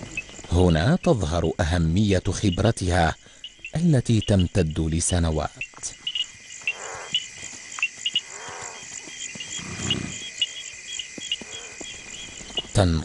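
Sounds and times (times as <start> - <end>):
crickets chirping: 0.0 - 13.0
low animal calls: 6.0 - 12.8.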